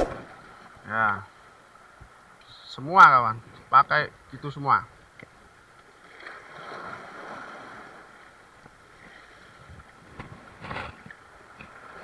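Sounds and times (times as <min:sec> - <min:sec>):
wind: 0:00.0 - 0:12.0
waves washing against shore: 0:06.1 - 0:08.2.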